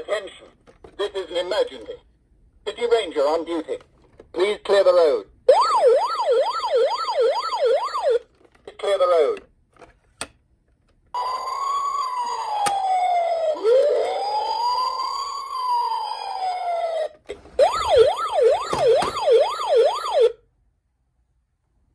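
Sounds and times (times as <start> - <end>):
toy ambulance siren: 5.5 - 8.2, 11.2 - 20.4.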